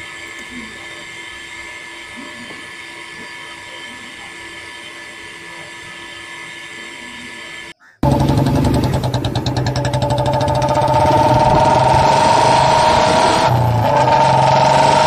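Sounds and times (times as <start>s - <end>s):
steady machine hum: 0.0s - 15.0s.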